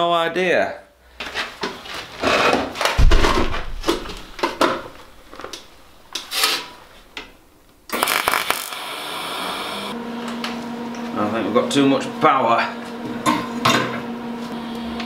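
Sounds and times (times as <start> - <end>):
metal sheet scraping and knocking: 3.0 - 5.0
welding arc buzzing hiss: 7.9 - 10.0.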